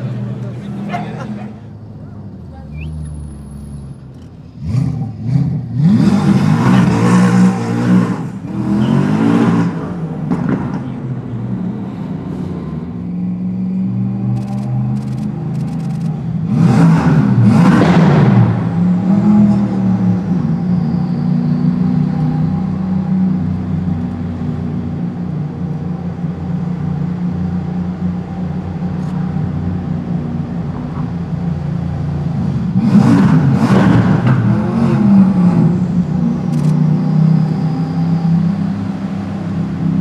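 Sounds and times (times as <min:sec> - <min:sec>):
car engine revving hard: 0:04.6 - 0:10.6, 0:16.5 - 0:20.1, 0:32.7 - 0:37.8
car engine running at low revs: 0:14.4 - 0:21.1, 0:22.8 - 0:40.0.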